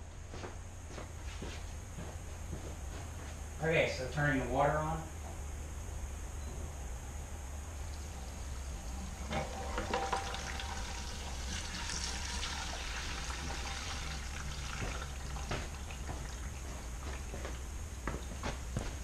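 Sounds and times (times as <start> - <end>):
running water: 8.2 - 18.4.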